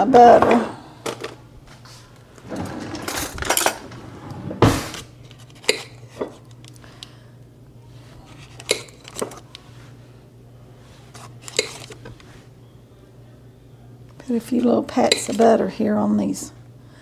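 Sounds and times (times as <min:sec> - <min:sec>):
metal cutlery rattling: 0:02.8 - 0:03.9.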